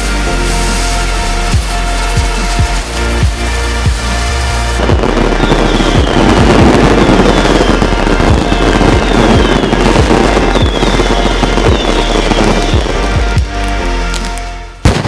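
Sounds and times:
electronic background music: 0.0 - 15.0
firecrackers crackling: 0.0 - 15.0.

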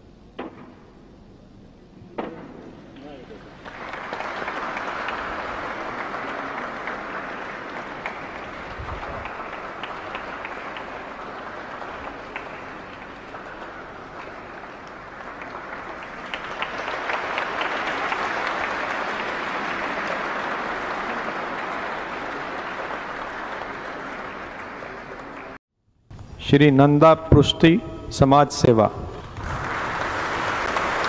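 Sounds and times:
audience applauding: 3.0 - 25.6, 29.2 - 31.0.

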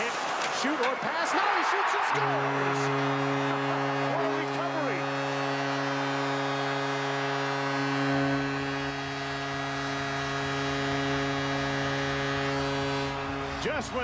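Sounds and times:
crowd noise: 0.0 - 6.3
goal horn blast: 0.9 - 14.0.

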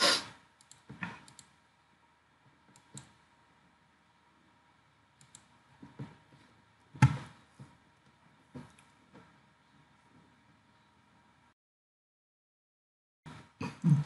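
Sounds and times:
computer mouse clicking: 0.6 - 1.6, 2.7 - 3.2, 5.2 - 5.5.

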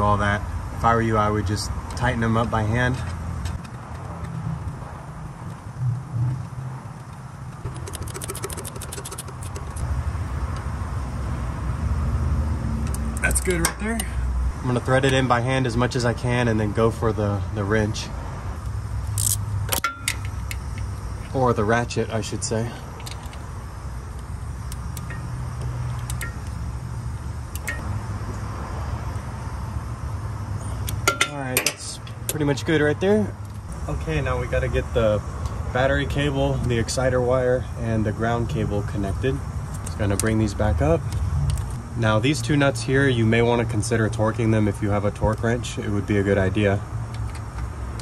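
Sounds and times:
steady low hum: 0.0 - 46.9
ratchet clicking rapidly: 7.6 - 9.8, 19.0 - 20.8.

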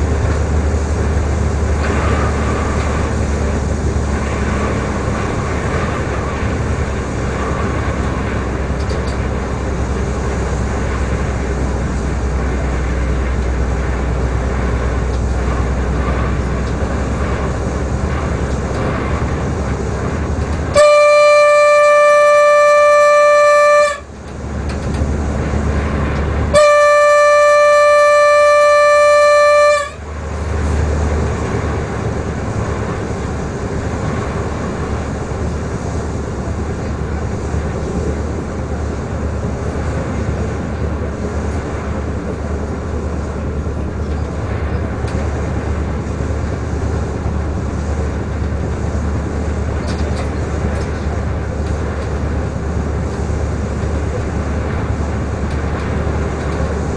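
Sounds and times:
railcar running noise: 0.0 - 56.9
train horn blasts: 20.6 - 24.2, 26.4 - 30.3.

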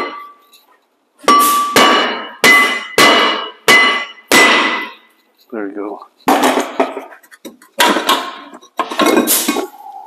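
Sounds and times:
hammer strikes on metal disc: 1.2 - 5.1.

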